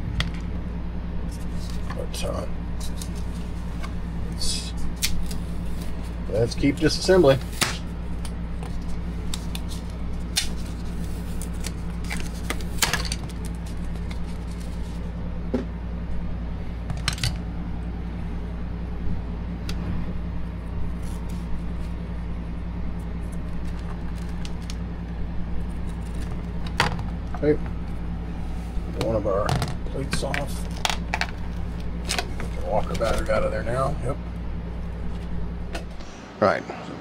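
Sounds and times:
steady low hum: 0.0 - 37.0
tape peeling: 4.8 - 6.2, 7.2 - 15.1, 20.8 - 22.0, 23.0 - 24.8.

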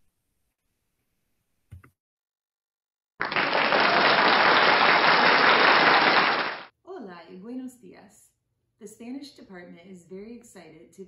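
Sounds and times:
applause: 3.2 - 6.7.

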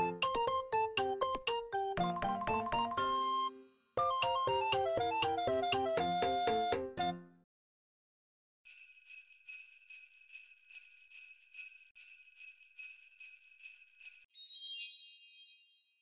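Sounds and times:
sleigh bells jingling: 8.7 - 15.6.

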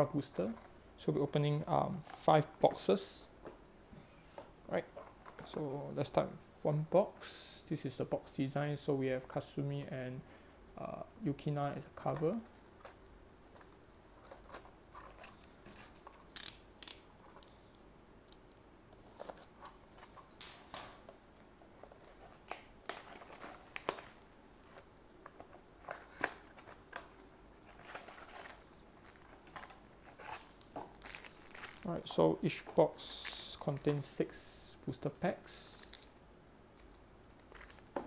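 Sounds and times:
foil packs crinkling: 22.0 - 24.3, 27.6 - 34.3, 35.2 - 36.2, 36.8 - 38.0.

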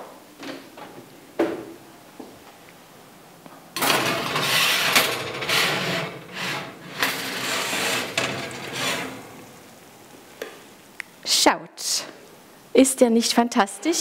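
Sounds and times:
baking stone scraping on wire rack: 3.8 - 9.7.

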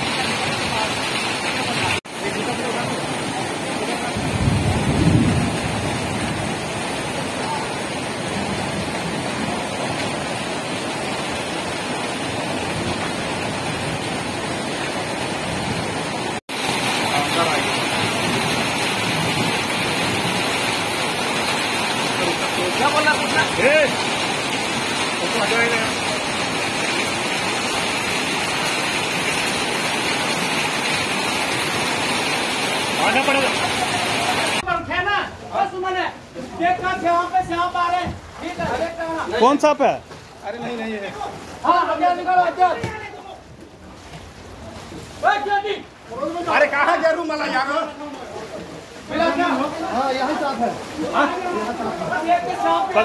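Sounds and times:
floodwater running: 0.0 - 53.0
heavy rain pouring: 0.0 - 53.0
wind rumble on microphone: 4.2 - 6.4.

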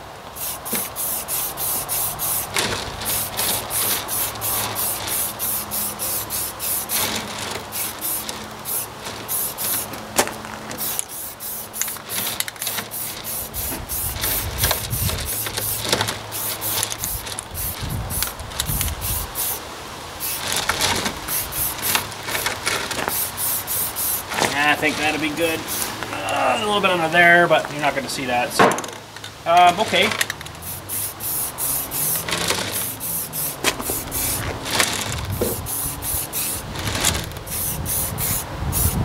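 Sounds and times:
spray can hissing: 0.3 - 19.6, 20.2 - 26.0, 30.6 - 39.0
wind rumble on microphone: 13.6 - 15.5, 17.0 - 19.4, 34.4 - 39.0.

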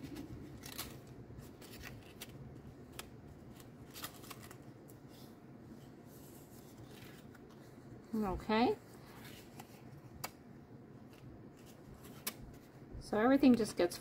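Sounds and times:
paper rustling and crackling: 0.0 - 5.4, 6.1 - 8.3.

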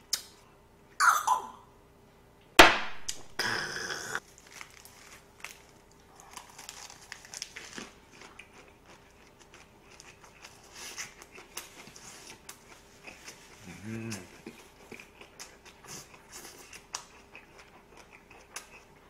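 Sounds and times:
lettuce leaves rustling and crunching: 4.3 - 8.0.

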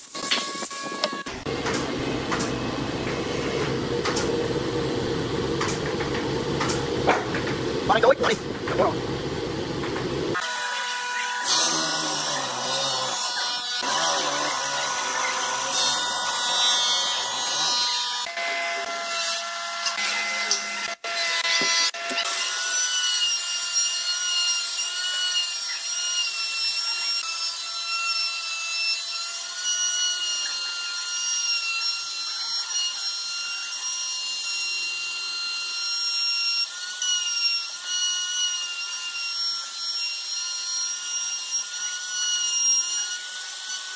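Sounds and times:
router whining: 0.0 - 27.4
electric drill boring into wood: 10.3 - 27.4.

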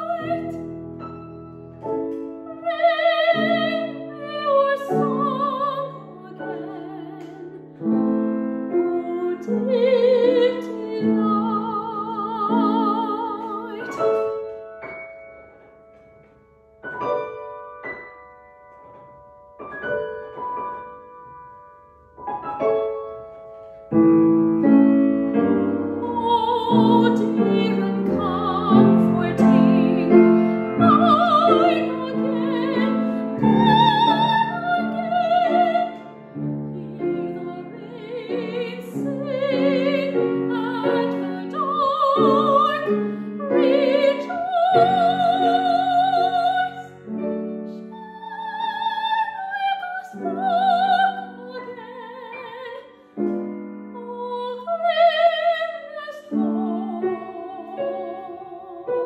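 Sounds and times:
woman singing operatically: 0.0 - 0.6, 2.6 - 7.9, 8.8 - 14.2, 26.0 - 36.0, 36.7 - 46.9, 47.9 - 52.9, 54.0 - 59.0
piano accompaniment: 0.0 - 59.0.

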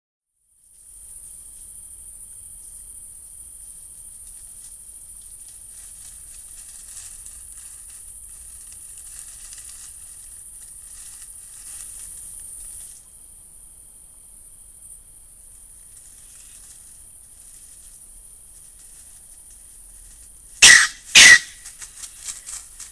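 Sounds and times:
night insects chirping: 0.4 - 22.9
faint scratchy crackles: 5.3 - 13.0.

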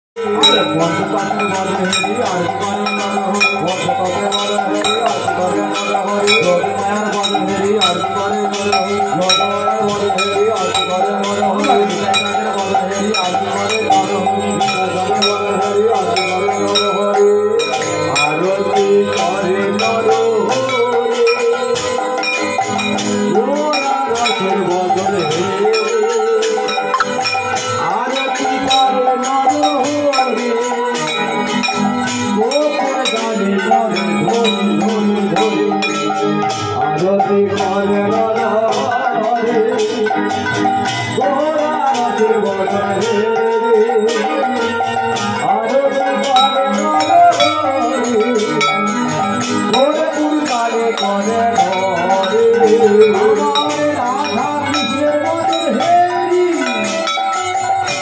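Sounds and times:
bells and metal percussion: 0.2 - 58.0
held wavering pitched tones: 26.7 - 27.7.

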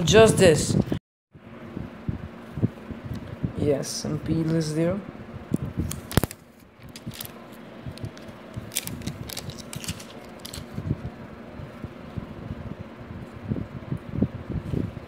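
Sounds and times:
plastic film crackling: 5.8 - 10.8.

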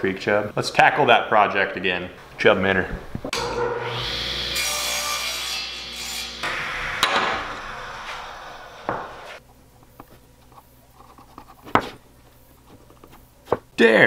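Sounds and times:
table saw cutting wood: 3.4 - 9.4.

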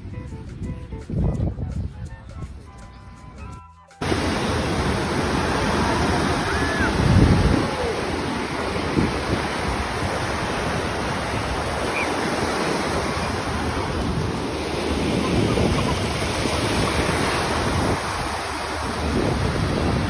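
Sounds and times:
wind rumbling on microphone: 0.0 - 20.0
ocean surf breaking: 4.0 - 20.0.

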